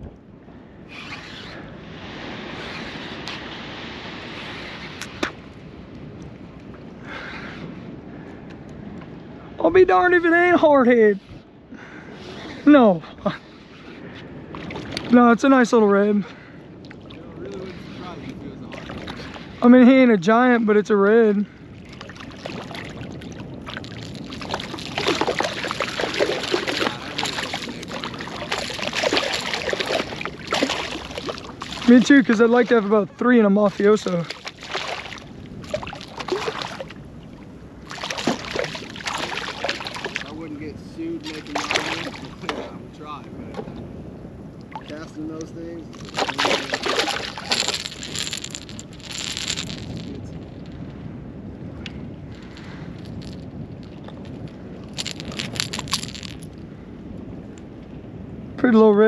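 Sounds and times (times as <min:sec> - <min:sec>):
wind noise on microphone: 0:00.0 - 0:59.0
fish splashing in water: 0:21.8 - 0:32.8, 0:33.7 - 0:37.1, 0:37.8 - 0:40.4, 0:41.2 - 0:42.6, 0:45.9 - 0:50.1.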